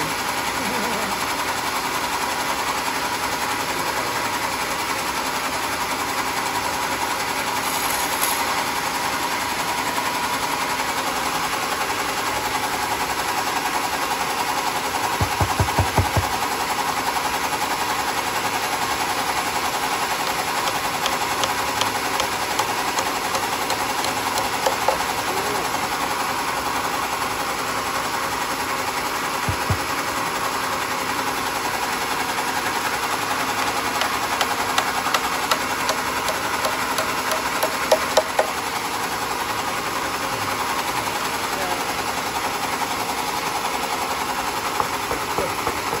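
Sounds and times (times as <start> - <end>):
short sharp knocks: 15.2 - 16.4, 20.2 - 25.1, 29.5 - 29.9, 33.6 - 38.6, 44.8 - 46.0
sawmill blade cutting wood: 19.3 - 25.8, 32.6 - 38.6, 44.5 - 46.0.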